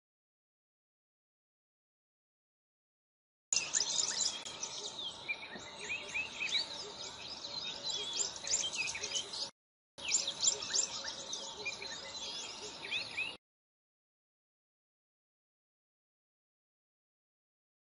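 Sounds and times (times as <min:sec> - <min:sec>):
chorus of small birds chirping: 0:03.5 - 0:13.4
light outdoor hiss: 0:03.6 - 0:09.4.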